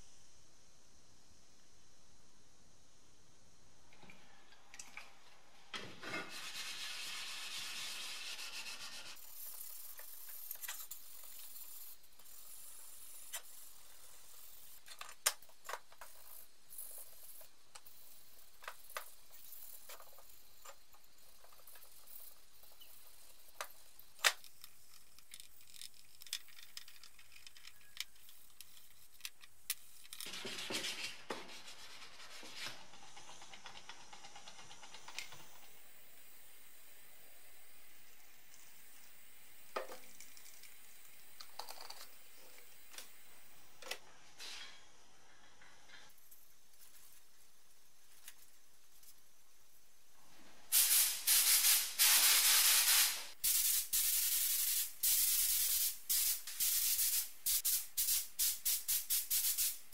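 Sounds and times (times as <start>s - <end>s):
sandpaper rubbing: 6.3s - 9.4s, 30.2s - 33.4s.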